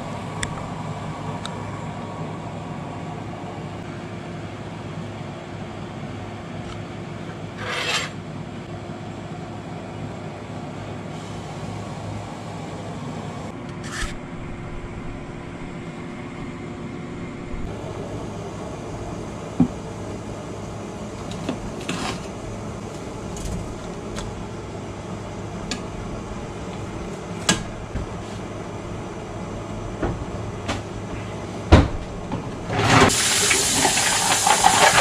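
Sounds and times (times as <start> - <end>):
low steady hum: 13.3 - 33.0.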